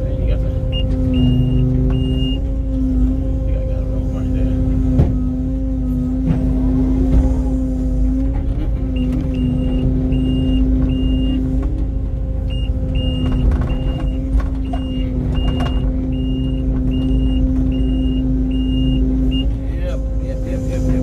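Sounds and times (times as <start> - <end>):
heavy diesel engine running: 0.0 - 21.0
backup alarm beeping: 0.6 - 2.5, 8.9 - 11.5, 12.5 - 19.6.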